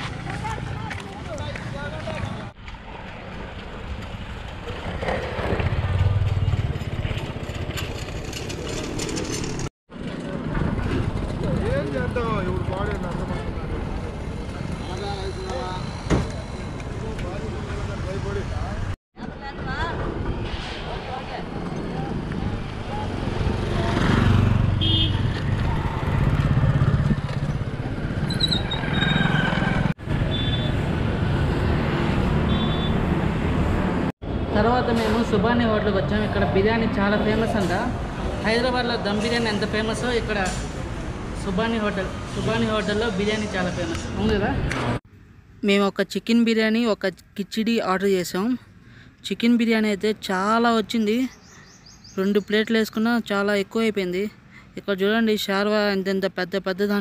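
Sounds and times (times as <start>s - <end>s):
motorcycle engines passing: 0.0s - 18.9s, 21.1s - 34.8s
low traffic rumble: 0.0s - 57.0s.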